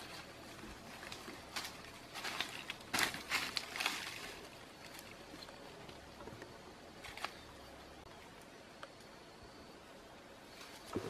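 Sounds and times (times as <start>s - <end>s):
dry leaves and twigs crackling: 0.0s - 9.2s, 10.4s - 11.0s.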